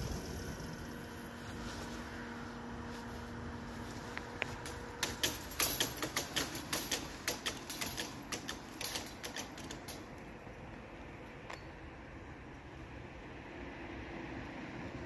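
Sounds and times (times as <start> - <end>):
barrier drives humming: 0.0 - 15.0
barrier clicks and rattles: 4.1 - 10.6.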